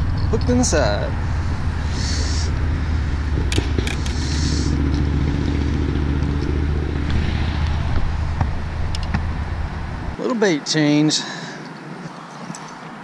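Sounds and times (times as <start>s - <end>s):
electric trolling motor humming: 0.0s - 10.2s.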